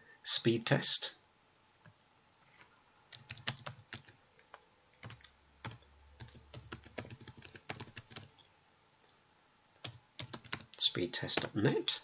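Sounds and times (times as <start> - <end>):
typing on computer keyboard: 3.1 - 8.3, 9.8 - 10.8.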